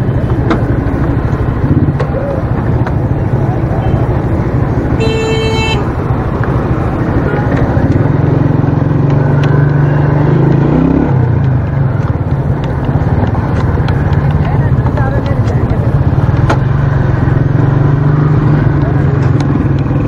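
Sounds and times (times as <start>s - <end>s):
motorcycle engine running: 0.0s - 20.0s
motorcycle horn: 4.9s - 6.0s.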